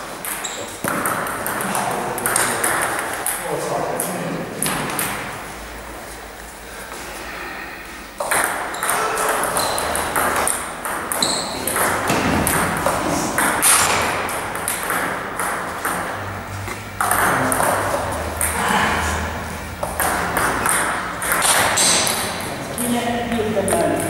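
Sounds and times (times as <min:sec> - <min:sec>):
hall background noise: 0:00.0 - 0:24.0
table tennis ball clicking: 0:08.2 - 0:18.6, 0:19.8 - 0:22.4.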